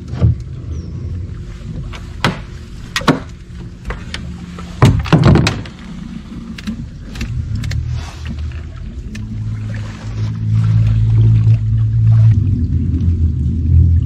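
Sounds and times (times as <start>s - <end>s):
steady low hum: 0.0s - 14.0s
gear knocking against boat hull: 1.8s - 5.8s.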